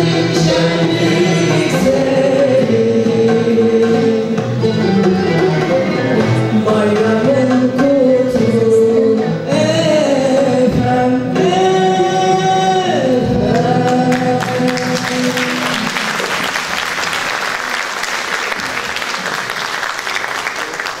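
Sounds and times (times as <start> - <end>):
accompanying ensemble: 0.0 - 9.9, 10.5 - 20.2
woman singing: 6.2 - 15.9
audience applause: 13.9 - 21.0.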